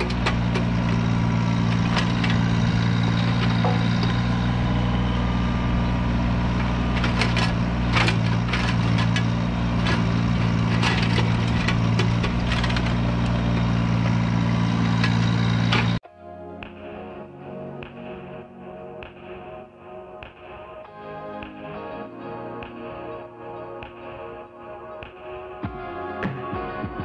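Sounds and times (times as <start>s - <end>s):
diesel engine running under load: 0.0s - 16.0s
bucket cracking and scraping soil: 6.6s - 14.0s.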